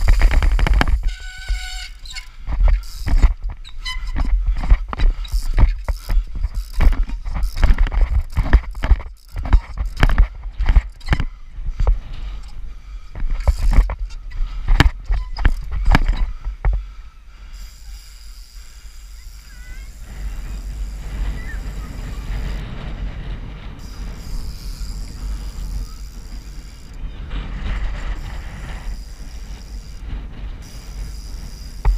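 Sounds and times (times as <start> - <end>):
bike rolling on paving: 0.0 - 31.9
bicycle tyres knocking on stone: 30.6 - 31.9.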